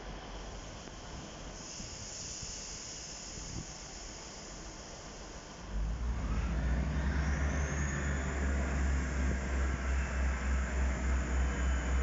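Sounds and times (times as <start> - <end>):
diesel train engine idling: 6.8 - 12.0.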